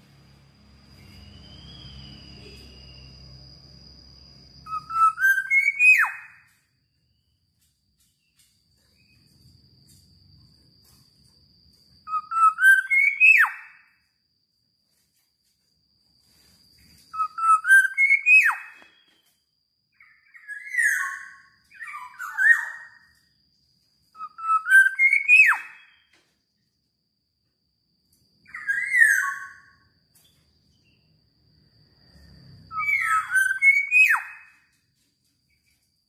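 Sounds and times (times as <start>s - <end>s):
bird singing whistled phrases: 1.0s - 3.1s, 4.6s - 6.5s, 12.1s - 13.9s, 17.1s - 19.4s, 20.0s - 23.1s, 24.2s - 26.2s, 28.5s - 29.9s, 32.7s - 34.7s.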